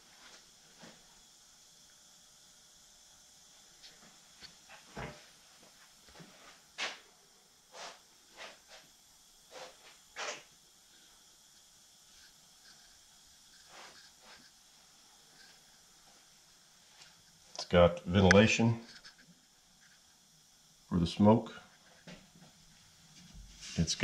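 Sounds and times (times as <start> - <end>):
faint steady hiss: 0.0 - 24.0.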